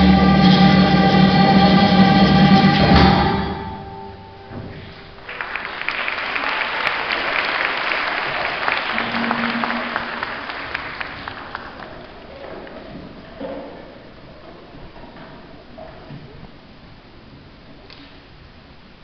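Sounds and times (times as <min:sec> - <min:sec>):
audience applauding: 0:05.2 - 0:12.9.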